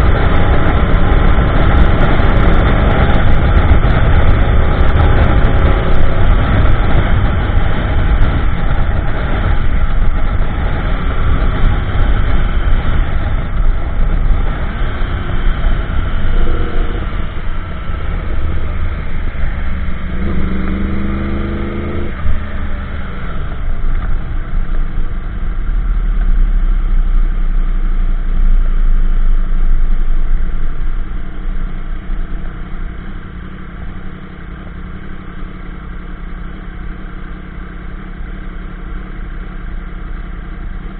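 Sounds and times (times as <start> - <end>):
wind rush on microphone: 0.0 - 25.7
motorcycle engine cruising: 0.0 - 28.2.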